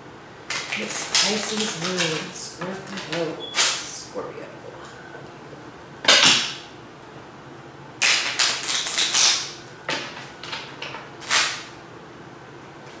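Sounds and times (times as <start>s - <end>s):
cards being shuffled: 8.0s - 9.4s.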